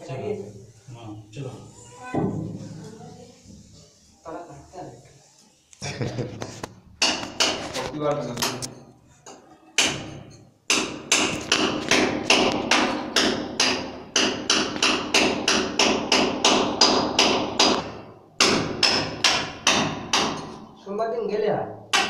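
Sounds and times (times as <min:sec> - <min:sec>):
hammer striking wall: 0:07.0 - 0:07.7, 0:09.8 - 0:20.7.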